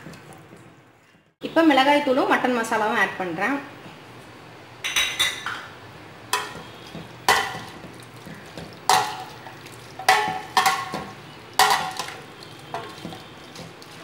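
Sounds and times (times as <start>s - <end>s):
meat sizzling in oil: 6.3s - 14.0s
metal spoon scraping pan: 6.3s - 14.0s.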